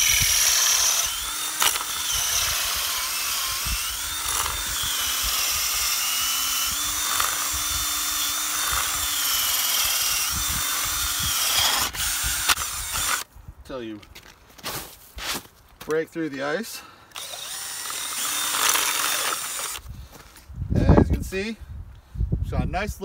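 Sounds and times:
cordless drill boring into ice: 0.0s - 13.2s, 17.1s - 19.9s.

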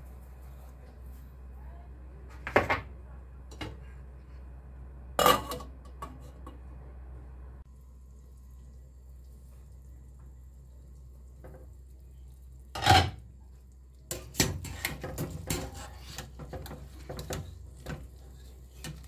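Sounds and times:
low steady hum: 0.0s - 19.0s
cookware clinking and knocking: 5.2s - 6.5s, 12.8s - 13.2s.

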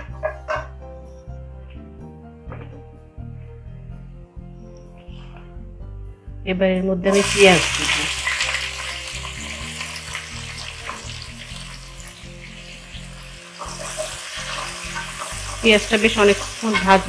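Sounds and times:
onions sizzling in hot oil: 7.1s - 17.0s.

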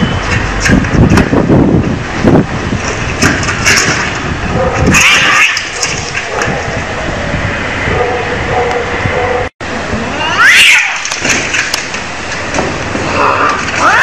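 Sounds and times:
steady noisy background: 0.0s - 14.0s
cat yowling: 4.9s - 5.7s, 10.2s - 11.0s, 13.2s - 14.0s.

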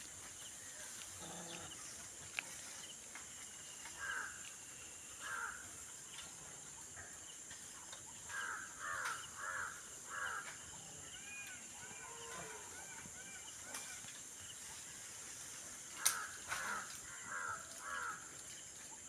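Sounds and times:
low animal call: 1.1s - 1.8s, 8.4s - 14.1s.

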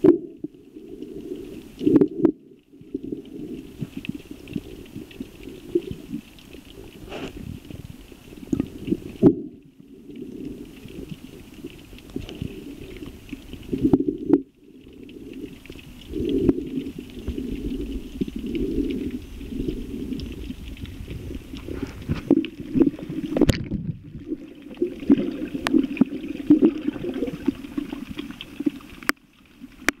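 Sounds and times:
muffled underwater rumbling: 0.0s - 30.0s
sharp underwater clicks: 8.4s - 30.0s.

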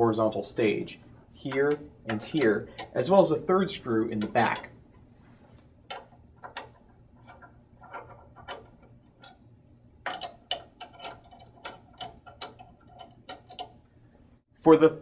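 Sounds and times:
hex key metallic clicks: 1.3s - 4.8s, 5.9s - 9.4s, 10.0s - 13.8s.

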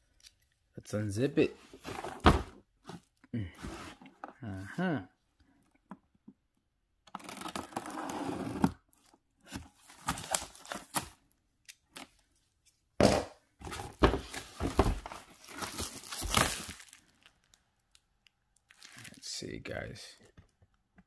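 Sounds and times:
plastic shrink-wrap tearing and crinkling: 15.4s - 18.0s, 18.6s - 19.2s.

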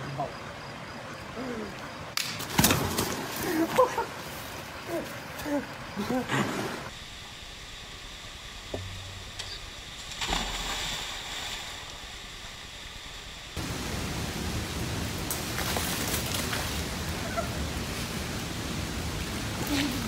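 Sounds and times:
splash into water: 10.1s - 11.9s.

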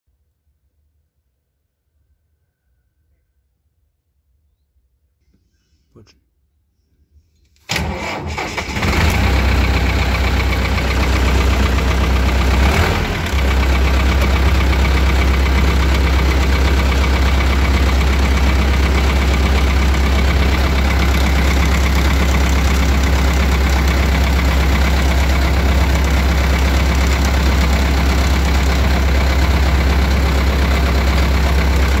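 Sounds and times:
tractor diesel engine idling: 7.7s - 32.0s.

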